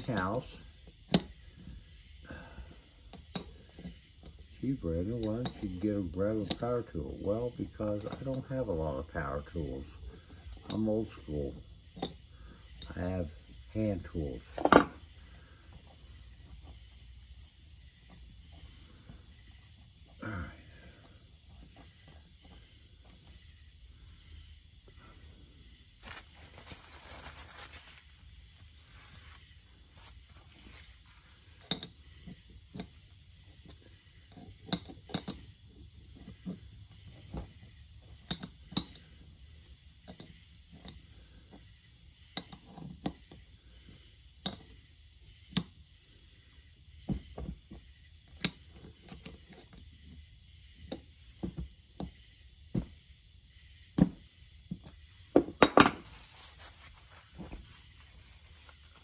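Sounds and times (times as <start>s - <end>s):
wrench clinking against lug nut: 14.6s - 15.0s.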